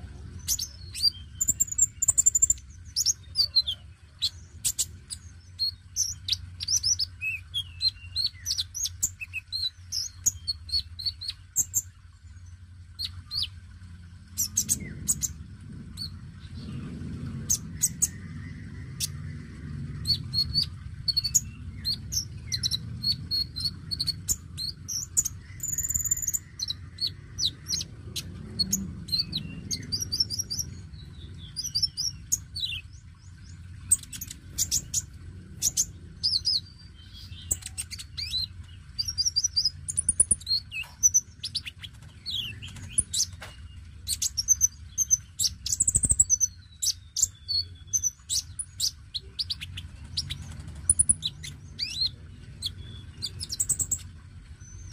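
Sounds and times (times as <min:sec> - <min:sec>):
bird chirping and trilling: 0:00.0 - 0:54.9
low background rumble: 0:00.0 - 0:54.9.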